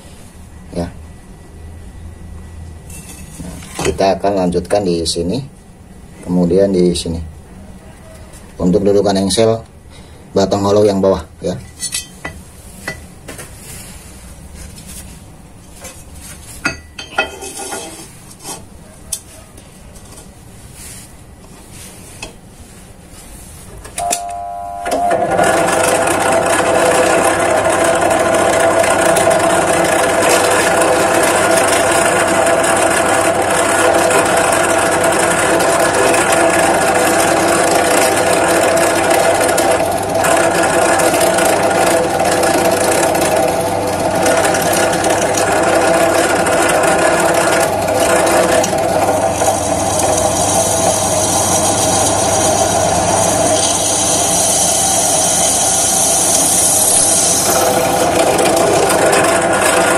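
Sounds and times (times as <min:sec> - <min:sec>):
drill press running: 0:23.9 - 0:59.9.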